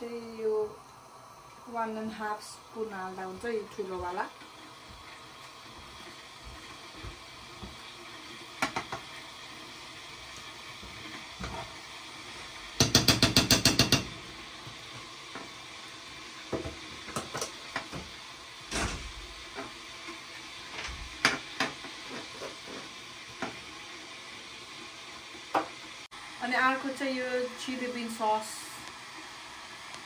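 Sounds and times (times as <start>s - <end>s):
hiss of simmering food: 0.0s - 30.0s
spoon tapping against pan: 12.8s - 14.2s.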